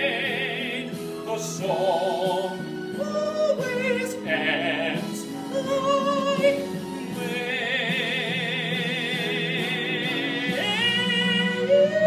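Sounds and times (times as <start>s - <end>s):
backing track: 0.0s - 12.0s.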